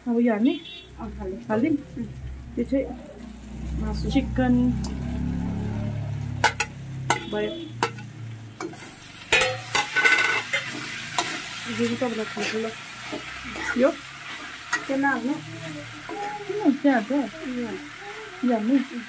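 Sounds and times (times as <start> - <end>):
food sizzling: 0.0 - 19.0
ladle clanking against pan: 6.4 - 11.4
ladle scraping a wok: 6.4 - 15.2.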